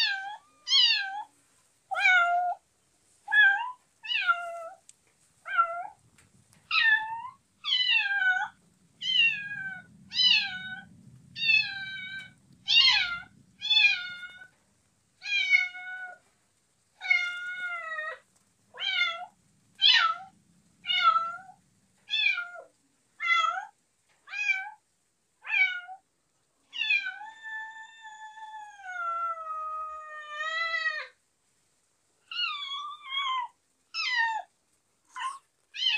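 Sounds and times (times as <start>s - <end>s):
kitten meowing: 0.0s - 1.3s, 6.7s - 14.5s.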